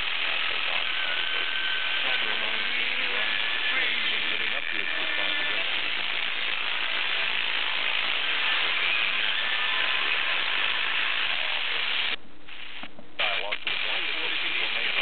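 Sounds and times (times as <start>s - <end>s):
faint radio speech: 0.0s - 15.0s
radio static hiss: 0.0s - 15.0s.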